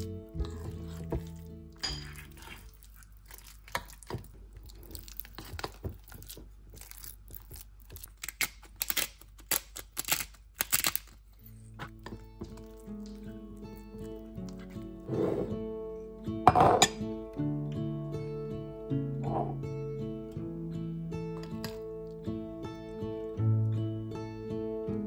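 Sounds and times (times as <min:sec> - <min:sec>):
wet squishing mixing: 0:00.0 - 0:08.8, 0:11.6 - 0:15.1
spoon scraping glass bowl: 0:00.4 - 0:02.9, 0:15.1 - 0:15.5.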